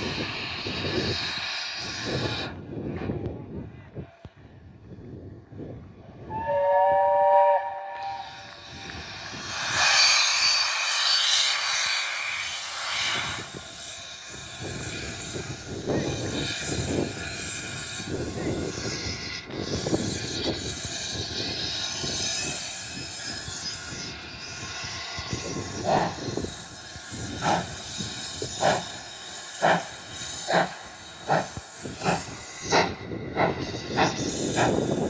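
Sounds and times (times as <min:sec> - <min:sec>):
steam hissing: 0:00.0 - 0:03.0, 0:06.3 - 0:35.0
steam locomotive whistle: 0:06.2 - 0:08.9
locomotive exhaust beat: 0:06.3 - 0:35.0.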